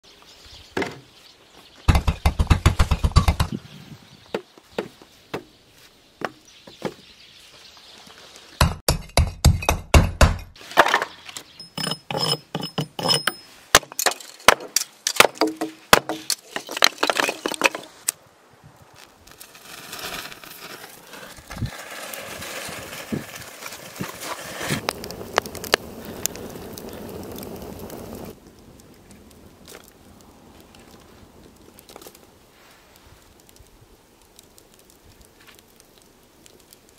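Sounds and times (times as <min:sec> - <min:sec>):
sharp wooden knocks and chops: 0:01.9 - 0:03.6, 0:08.6 - 0:10.5
fire crackling in stove: 0:16.3 - 0:36.9.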